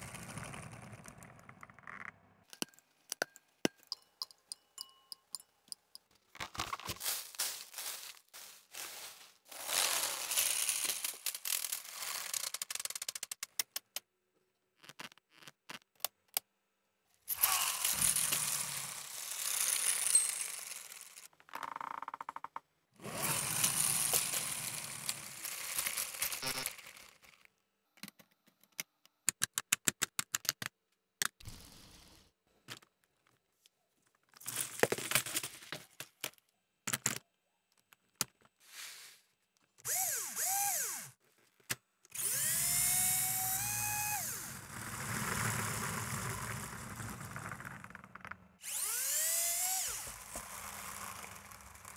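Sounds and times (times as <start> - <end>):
granules rustling and scraping: 6.5 - 12.8, 23.0 - 27.5.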